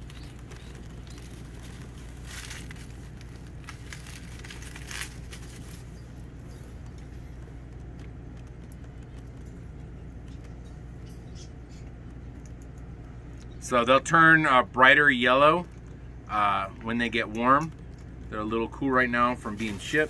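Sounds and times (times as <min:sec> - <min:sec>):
plastic bag rustling: 0:00.0 - 0:07.2, 0:19.4 - 0:20.0
low hum: 0:00.0 - 0:20.0.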